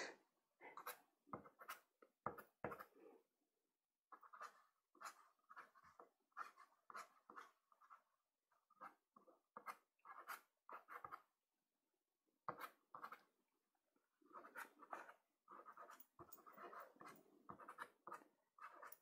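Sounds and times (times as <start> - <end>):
pastel stick scraping paper: 4.1 - 8.0, 14.2 - 19.0.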